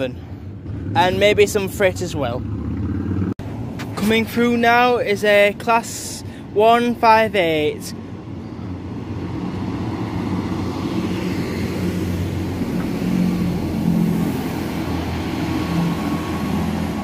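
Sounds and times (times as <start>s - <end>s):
diesel train engine drone: 8.0s - 17.0s.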